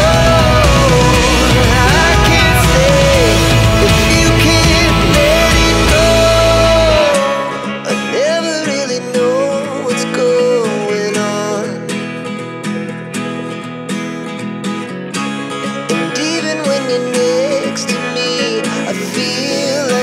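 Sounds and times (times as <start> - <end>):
heavy bass: 0.0 - 7.4
wavering lead melody: 0.0 - 8.0
plucked guitar music: 0.0 - 20.0.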